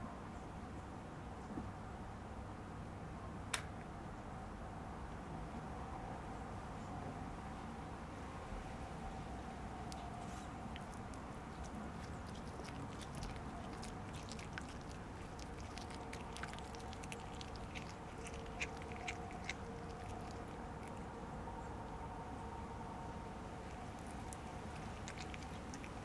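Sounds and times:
cat crunching food: 9.2s - 21.2s, 23.4s - 26.0s.

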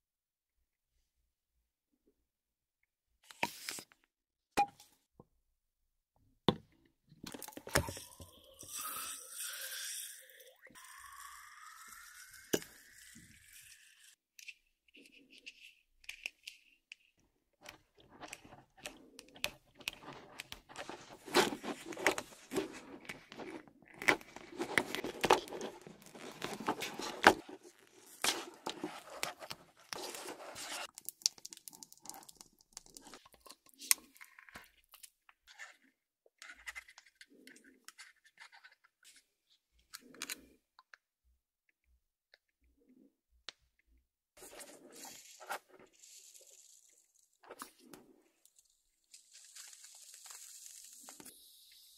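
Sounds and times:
plastic tape crinkling: 48.6s - 51.3s.

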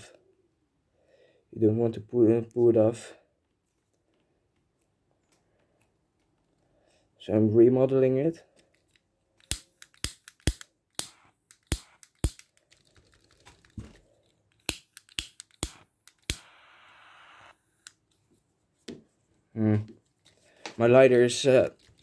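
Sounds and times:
person speaking: 19.5s - 20.0s, 20.7s - 22.0s.

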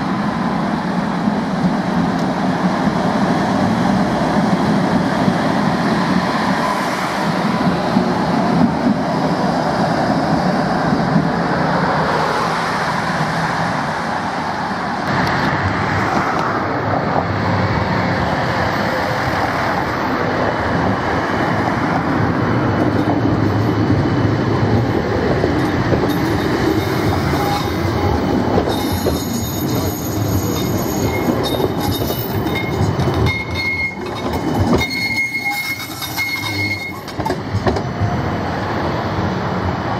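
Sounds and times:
tram wheels rumbling on rail: 0.0s - 39.9s.

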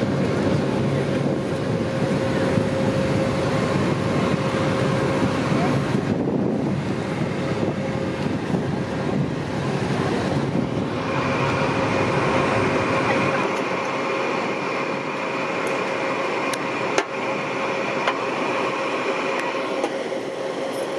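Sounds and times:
high whine: 0.0s - 20.9s
machinery drone: 0.0s - 20.9s.

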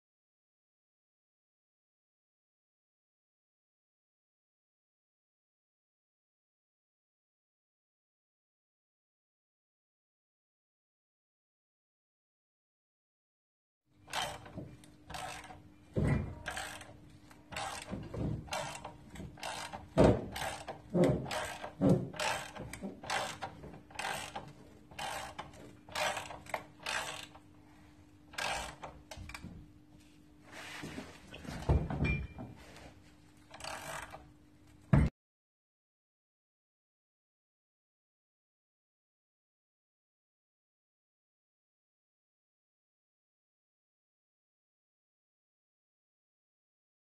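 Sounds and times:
ratchet wrench clicking: 24.0s - 24.4s, 25.0s - 27.4s, 28.4s - 28.9s, 33.5s - 34.2s.

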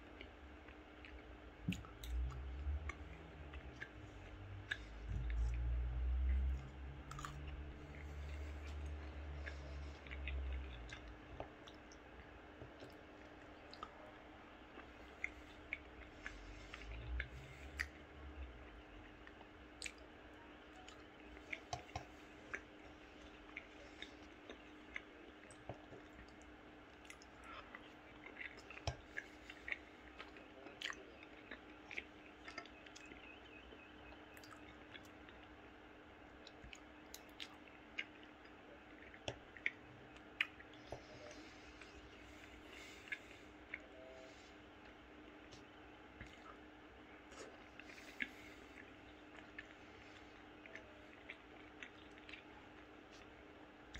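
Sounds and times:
person chewing: 0.0s - 33.4s, 34.2s - 53.9s
faint steady hum: 0.0s - 53.9s
wet mouth clicks: 1.0s - 12.0s, 19.2s - 20.1s.

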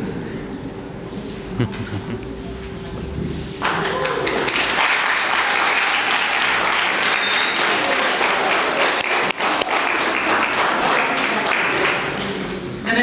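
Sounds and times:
audience applauding: 3.6s - 12.4s.

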